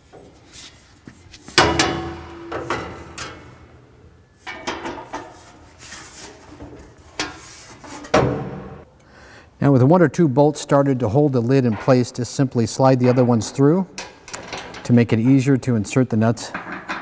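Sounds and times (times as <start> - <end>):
metal hardware knocks and clicks: 1.6 - 5.4
metal lid clanking: 1.6 - 5.6.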